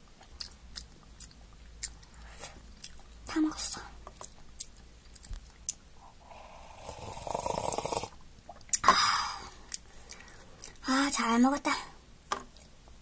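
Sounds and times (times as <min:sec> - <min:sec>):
noodle slurping: 0:06.4 - 0:08.2.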